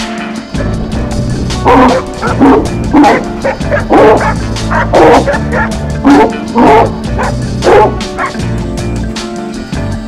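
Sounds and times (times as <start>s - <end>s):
background music: 0.0s - 10.0s
dog barking: 1.6s - 8.4s.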